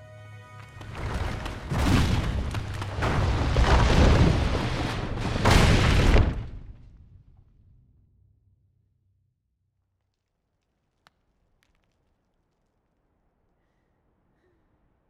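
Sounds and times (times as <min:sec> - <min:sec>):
rockfall crash with deep booms: 0:00.9 - 0:07.6.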